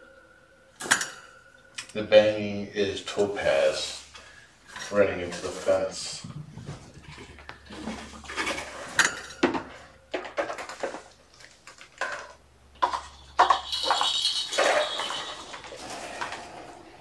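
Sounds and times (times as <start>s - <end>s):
wire fence banging and rattling: 12.0s - 16.6s.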